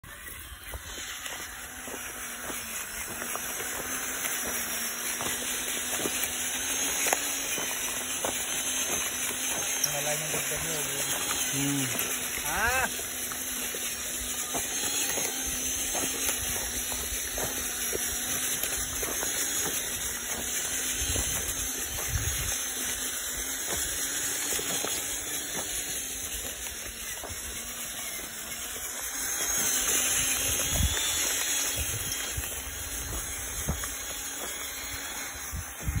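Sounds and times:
toy electric motor humming: 0:00.0 - 0:36.0.

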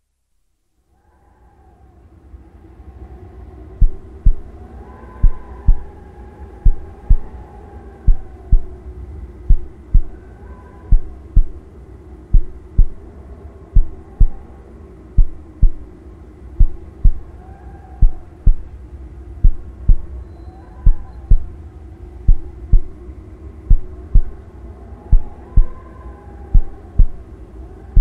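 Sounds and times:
low steady hum: 0:00.0 - 0:28.0
faint rising and falling tones: 0:01.1 - 0:28.0
heartbeat thumps: 0:03.8 - 0:04.5, 0:05.2 - 0:06.0, 0:06.6 - 0:07.4, 0:08.1 - 0:08.8, 0:09.4 - 0:10.2, 0:10.9 - 0:11.7, 0:12.3 - 0:13.1, 0:13.8 - 0:14.5, 0:15.2 - 0:15.9, 0:16.6 - 0:17.3, 0:18.0 - 0:18.7, 0:19.4 - 0:20.2, 0:20.8 - 0:21.6, 0:22.3 - 0:23.0, 0:23.7 - 0:24.4, 0:25.1 - 0:25.8, 0:26.5 - 0:27.3.

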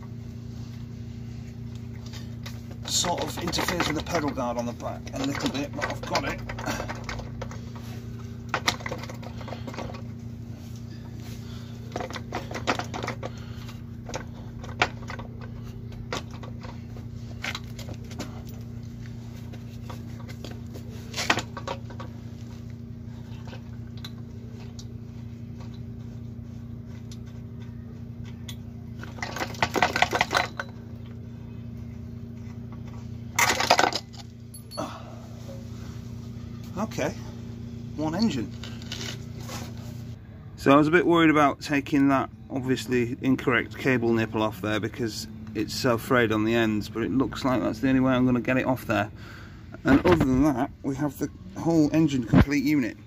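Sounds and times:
steady low hum: 0:00.0 - 0:53.0
metal tools clinking and knocking: 0:02.8 - 0:07.8, 0:28.4 - 0:31.1, 0:33.4 - 0:34.9.

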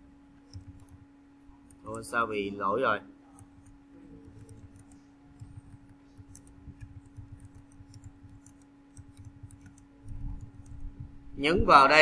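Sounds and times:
low electrical hum: 0:00.0 - 0:12.0
typing on computer keyboard: 0:00.4 - 0:01.0, 0:03.3 - 0:10.9.

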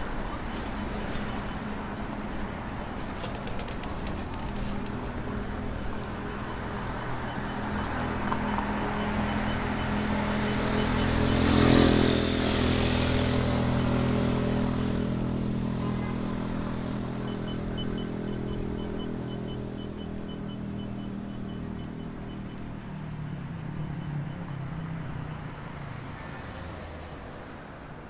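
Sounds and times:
steady engine hum: 0:00.0 - 0:26.8
vehicle passing close by: 0:07.3 - 0:19.8.

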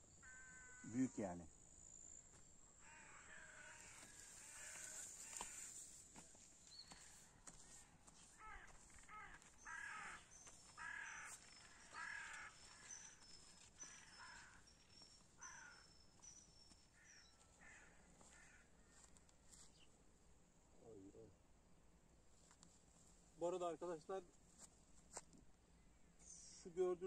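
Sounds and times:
crows cawing: 0:00.2 - 0:01.1, 0:02.8 - 0:06.0, 0:06.9 - 0:16.1, 0:16.9 - 0:19.2.

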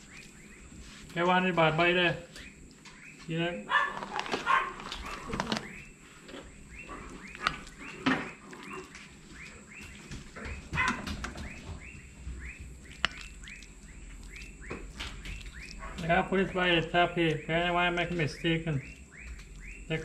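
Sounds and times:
small animal chirping: 0:02.4 - 0:16.6.

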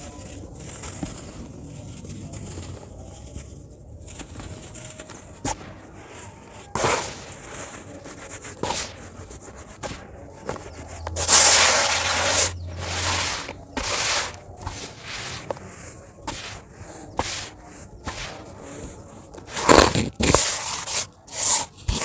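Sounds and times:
sand lumps clicking: 0:00.0 - 0:22.0
sand pouring into bucket: 0:11.1 - 0:18.5.

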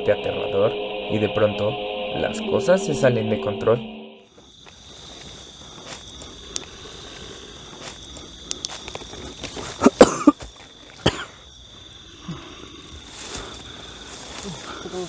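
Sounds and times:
night insects trilling: 0:00.0 - 0:15.0
bamboo and undergrowth rustling: 0:13.0 - 0:15.0.

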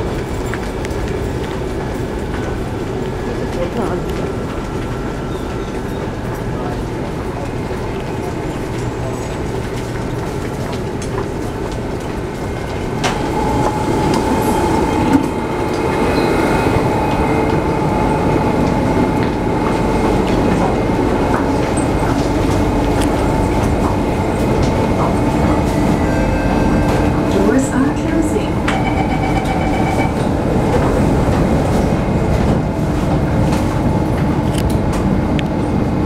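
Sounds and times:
metro train humming: 0:00.0 - 0:36.0
steady high tone: 0:27.9 - 0:30.5.

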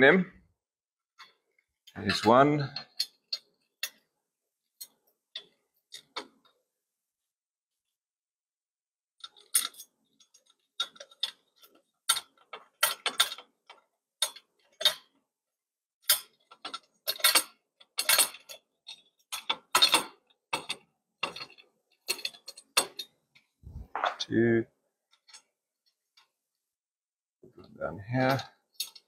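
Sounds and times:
metal clicks and knocks: 0:09.2 - 0:15.2, 0:16.0 - 0:24.3.

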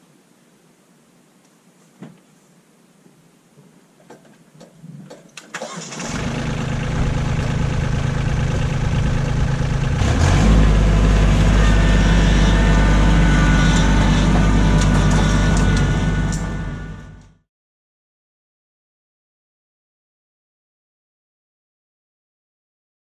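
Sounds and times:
diesel tractor engine starting: 0:05.5 - 0:17.4.

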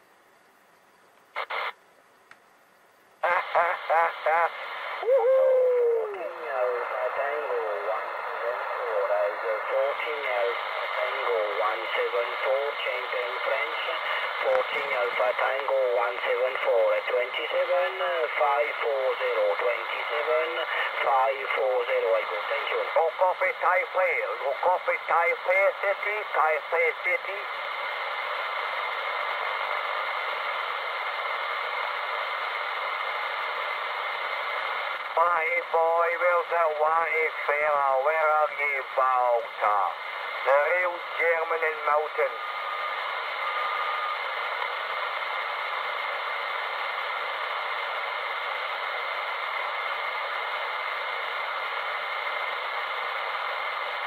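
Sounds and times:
radio static hiss: 0:00.0 - 0:54.0
faint steady whistle: 0:42.4 - 0:44.3.

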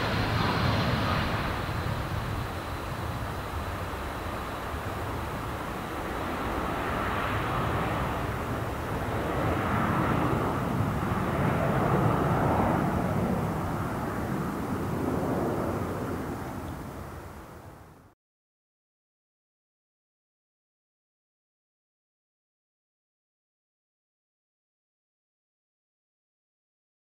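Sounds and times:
jet airliner roar: 0:00.0 - 0:18.1.

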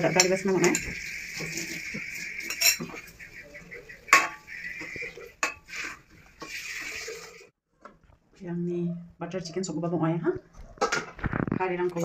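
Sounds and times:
metal spoon stirring in pan: 0:00.0 - 0:07.5.

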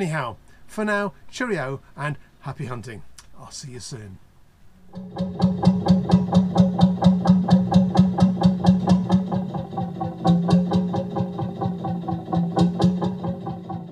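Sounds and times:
diesel engine running slowly: 0:05.0 - 0:13.9.

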